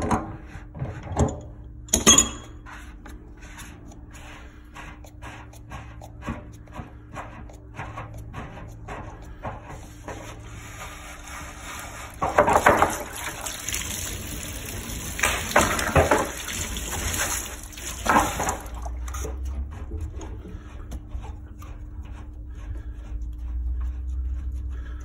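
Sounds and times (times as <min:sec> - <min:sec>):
water hissing and spurting: 0:10.5 - 0:19.4.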